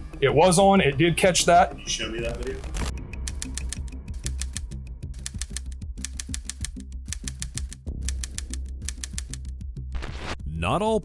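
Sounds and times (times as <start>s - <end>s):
typewriter keys clicking: 3.3s - 4.6s, 5.2s - 9.5s.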